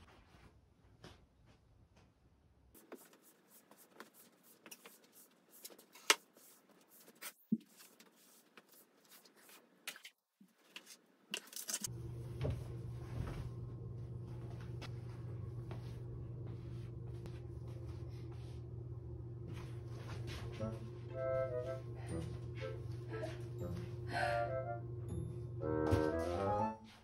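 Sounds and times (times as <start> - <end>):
broom sweeping hard floor: 2.8 - 9.7
steady low hum: 11.8 - 26.7.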